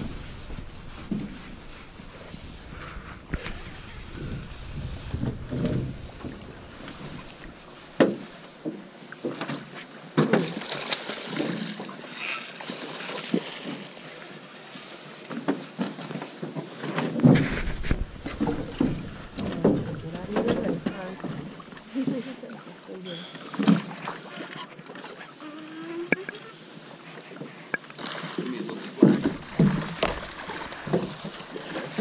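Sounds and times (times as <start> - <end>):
river water around a boat: 0.0 - 32.0
knocks on a boat: 29.0 - 30.3.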